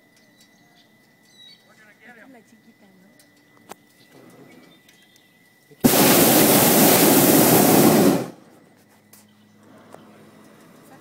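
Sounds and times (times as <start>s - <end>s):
propane burner blast: 5.8s - 8.6s.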